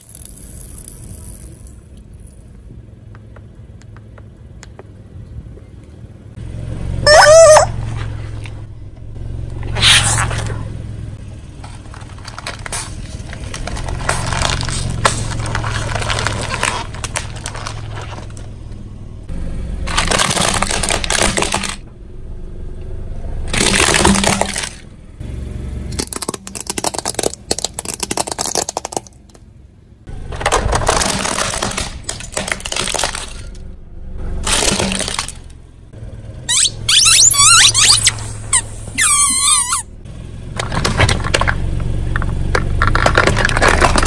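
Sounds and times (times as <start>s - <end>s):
foil wrappers crinkling under tyre: 11.6s - 18.7s, 19.9s - 21.8s, 30.4s - 33.6s, 40.6s - 44.0s
plastic cracking and snapping: 26.0s - 29.4s, 40.6s - 44.0s.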